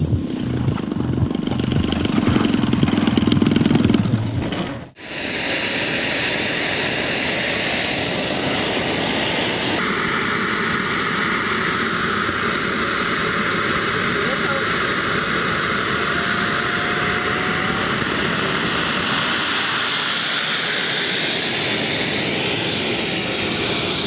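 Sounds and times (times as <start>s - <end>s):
model airplane propeller engine: 0.0s - 24.0s
jet turbine engine whine: 4.9s - 24.0s.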